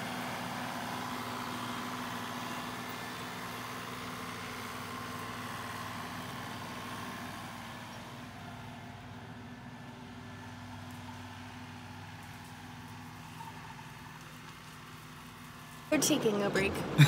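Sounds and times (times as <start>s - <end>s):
tractor diesel engine running: 0.0s - 17.0s.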